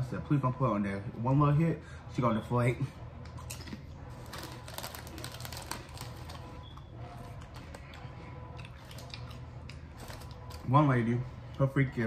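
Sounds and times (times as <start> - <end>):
eating crackles and clicks: 3.2 - 10.6.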